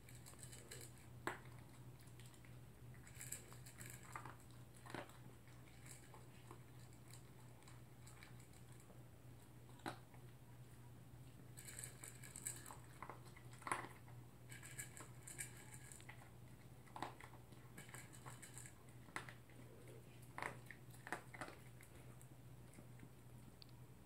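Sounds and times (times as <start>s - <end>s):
dog chewing crunchily: 0.0s - 23.3s.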